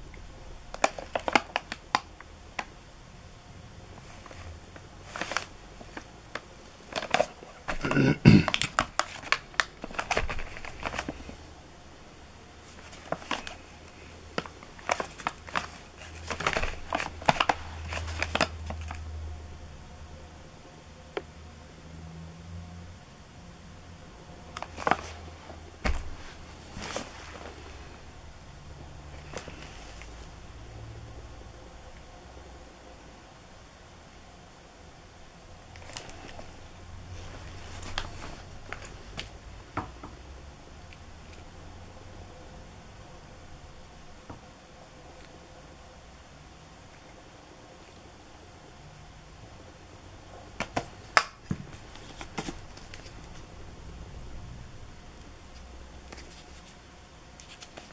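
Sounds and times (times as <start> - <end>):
low steady hum: 0.0 - 57.9
plastic wrapping crinkling: 0.7 - 2.7, 4.0 - 11.4, 12.6 - 19.0, 24.5 - 27.9, 37.2 - 39.4
rustling of card and plastic: 0.7 - 2.7, 4.0 - 11.5, 12.6 - 19.1, 24.5 - 28.0, 29.1 - 30.3, 35.7 - 39.4, 50.6 - 53.5, 55.5 - 56.8, 57.4 - 57.9.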